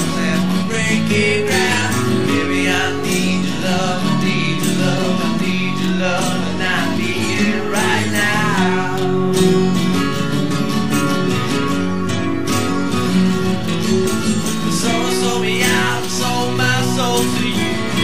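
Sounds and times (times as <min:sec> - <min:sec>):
guitar music: 0:00.0 - 0:18.0.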